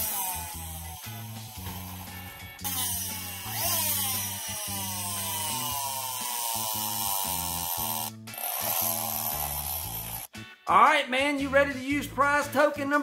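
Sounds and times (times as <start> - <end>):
toy truck friction motor whining: 0.0 - 10.3
background music: 0.0 - 13.0.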